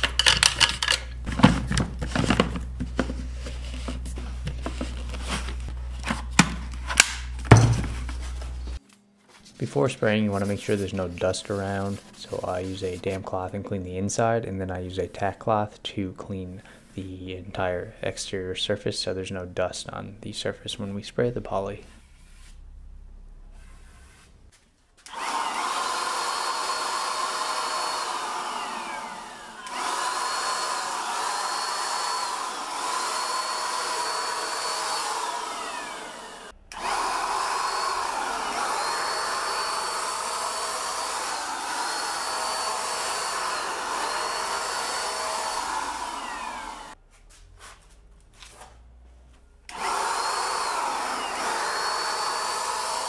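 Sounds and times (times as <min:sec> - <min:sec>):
paint sprayer motor whine: 0:25.0 - 0:47.0, 0:49.7 - 0:53.0.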